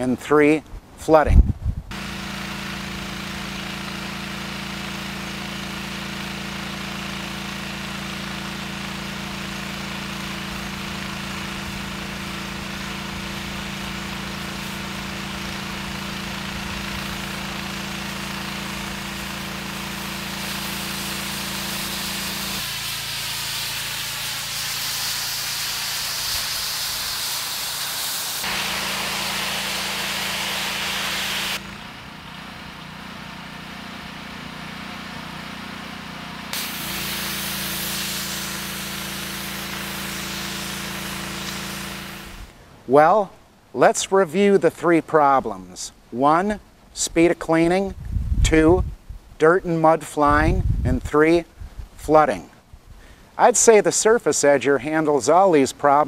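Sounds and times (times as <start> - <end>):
pressure washer engine running: 1.9 - 42.6
water jet spraying concrete: 1.9 - 43.1, 53.4 - 56.0.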